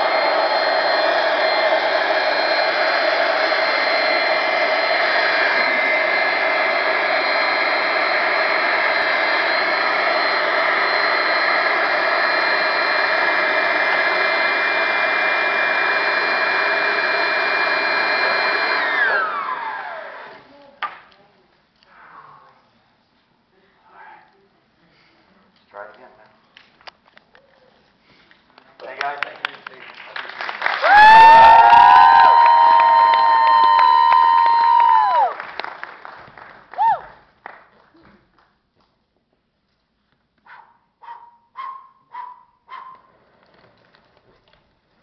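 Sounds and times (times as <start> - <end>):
electric air blower whining: 0.0 - 20.5, 30.8 - 35.4
motor spinning down: 0.0 - 20.5, 30.8 - 35.3.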